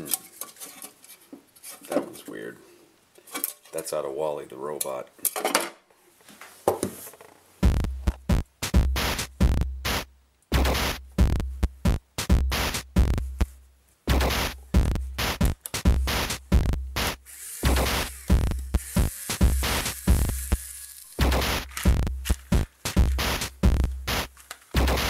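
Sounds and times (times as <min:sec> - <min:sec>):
electronic music with drum-machine beat: 0:07.6 - 0:13.5, 0:14.1 - 0:25.0.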